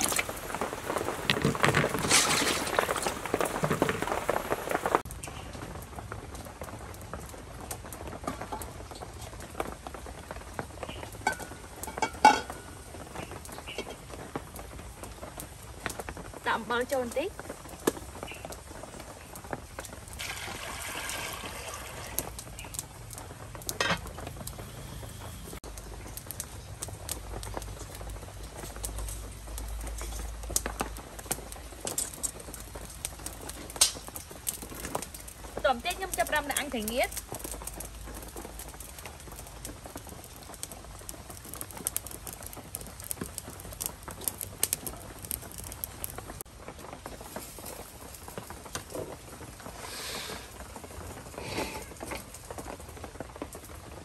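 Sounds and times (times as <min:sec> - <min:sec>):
fine crackling and pattering: 0:00.0 - 0:20.2, 0:22.0 - 0:54.0
metal pot clanking down: 0:11.2 - 0:12.6.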